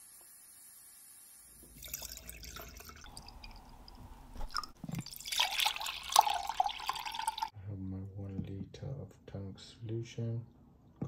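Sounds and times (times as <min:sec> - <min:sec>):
liquid pouring into a glass jar: 0:01.6 - 0:07.5.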